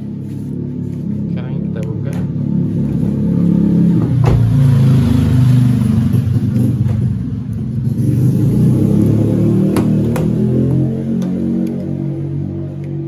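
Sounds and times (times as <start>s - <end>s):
loud steady low hum: 0.0s - 4.4s.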